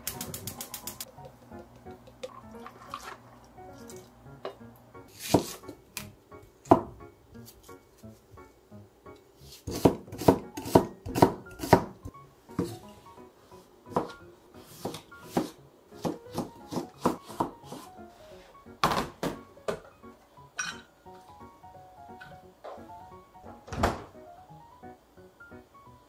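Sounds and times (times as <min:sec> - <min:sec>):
soft background music: 0:00.0 - 0:26.0
knife slicing onion on board: 0:05.1 - 0:06.1, 0:09.4 - 0:12.8, 0:13.9 - 0:17.9.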